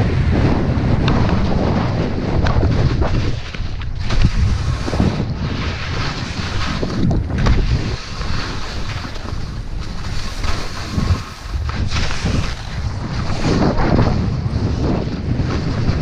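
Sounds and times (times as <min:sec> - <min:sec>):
wind buffeting microphone: 0:00.0 - 0:16.0
skis hissing through snow: 0:04.0 - 0:06.9, 0:07.7 - 0:13.7.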